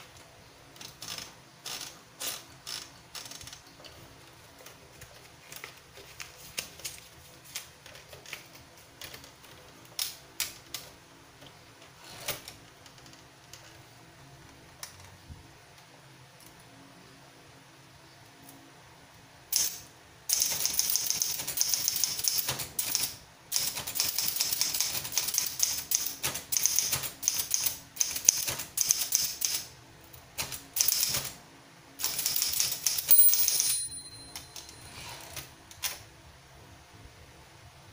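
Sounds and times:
typewriter typebars clacking: 19.5 - 29.7, 30.4 - 31.4, 32.0 - 34.6
typewriter margin bell ring: 32.4 - 35.4.

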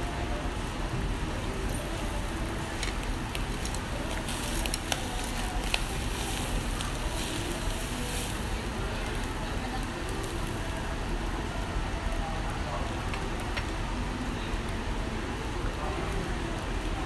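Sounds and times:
fish sizzling on a grill: 0.1 - 17.0.

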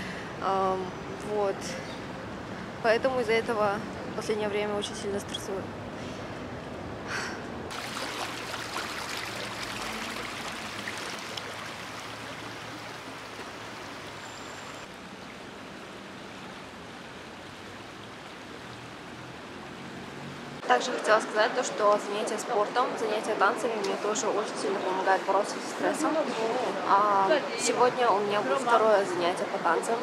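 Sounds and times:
stream water running over rocks: 7.7 - 30.0.

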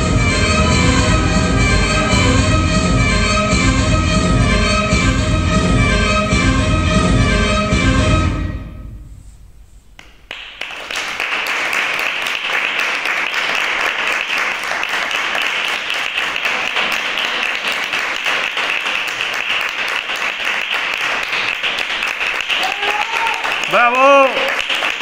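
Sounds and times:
audience clapping: 10.0 - 25.0.

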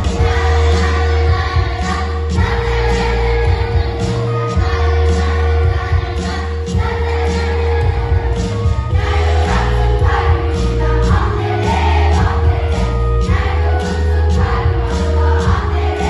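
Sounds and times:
children's choir singing: 0.0 - 16.0
pop music with heavy bass: 0.0 - 16.0.

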